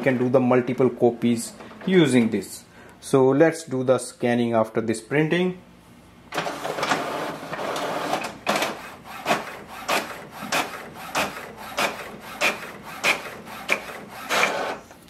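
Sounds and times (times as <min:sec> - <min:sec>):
printer paper feed running: 0:00.0 - 0:02.3, 0:06.3 - 0:14.9
printer mechanism clacking: 0:00.0 - 0:02.5, 0:06.3 - 0:14.8.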